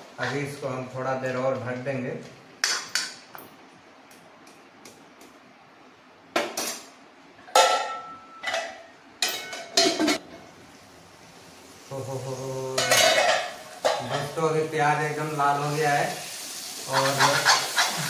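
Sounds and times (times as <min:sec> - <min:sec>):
steel cookware clattering: 0:07.5 - 0:10.2, 0:12.8 - 0:14.3.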